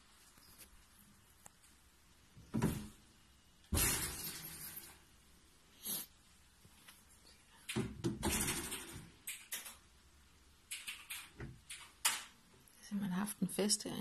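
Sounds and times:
wire-mesh cage door rattling: 7.7 - 9.8.

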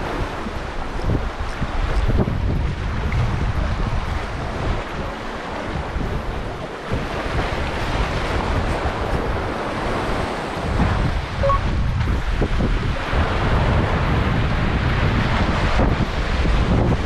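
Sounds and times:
sea waves on shore: 0.0 - 17.0
wind gusting against microphone: 0.0 - 17.0.

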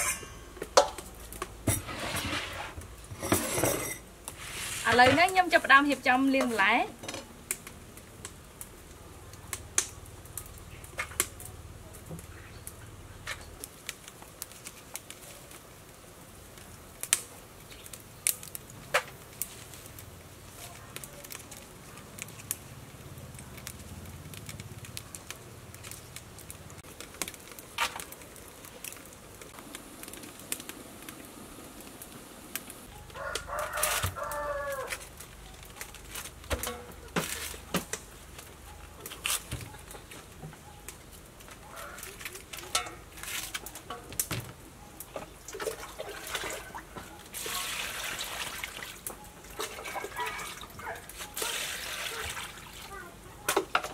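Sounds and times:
rooster crowing: 33.0 - 35.0.

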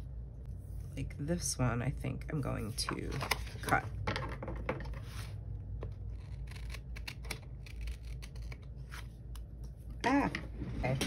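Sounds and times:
scissors snipping paper: 6.1 - 9.5.

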